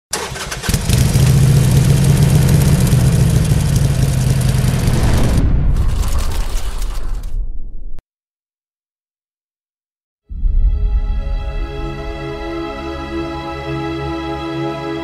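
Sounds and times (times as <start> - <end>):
motorcycle engine running: 0.2 - 5.4.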